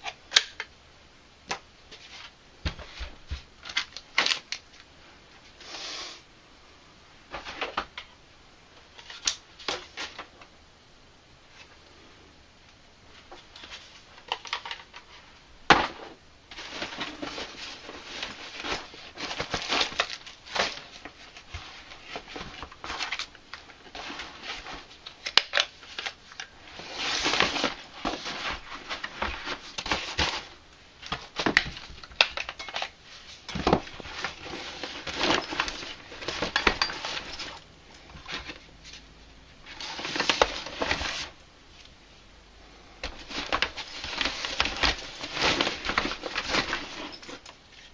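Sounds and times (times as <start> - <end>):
fabric bag rustling: 43.2 - 47.9.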